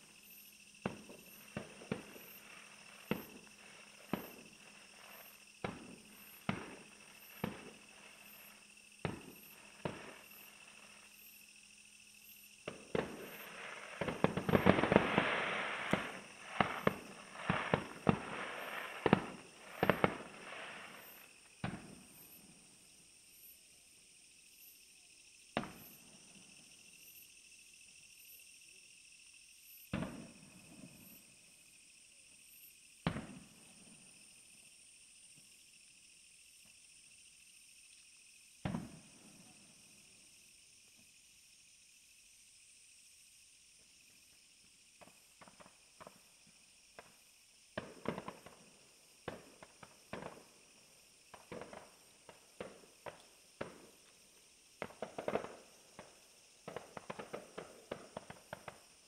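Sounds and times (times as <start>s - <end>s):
fireworks bursting: 0.0s - 11.3s, 12.6s - 22.2s, 47.0s - 59.0s.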